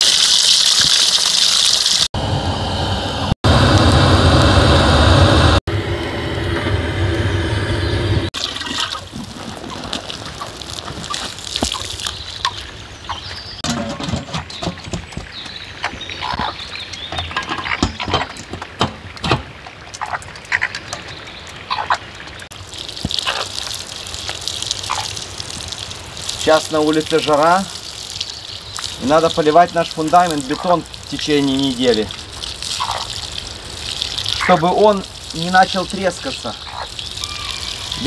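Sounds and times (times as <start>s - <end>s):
water trickling and dripping: 8.4s - 13.6s, 14.5s - 38.0s.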